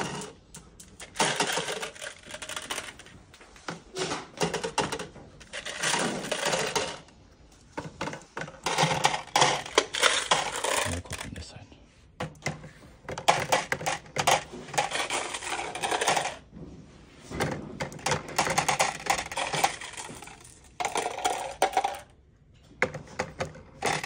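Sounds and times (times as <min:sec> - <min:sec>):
marbles clattering into plastic cup: 0:00.0 - 0:03.2, 0:04.0 - 0:07.1, 0:07.8 - 0:11.4, 0:13.1 - 0:16.5, 0:17.8 - 0:22.2, 0:22.8 - 0:24.0.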